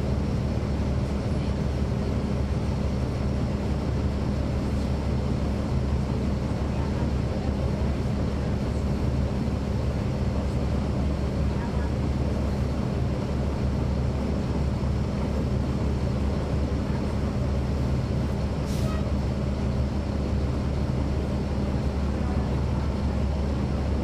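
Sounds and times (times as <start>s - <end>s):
bus diesel engine running: 0.0s - 24.0s.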